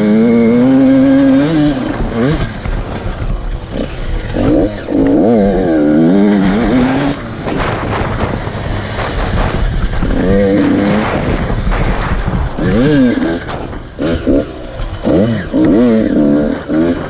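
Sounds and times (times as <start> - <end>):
dirt bike engine revving: 0.0 - 17.0
wind buffeting microphone: 0.9 - 17.0.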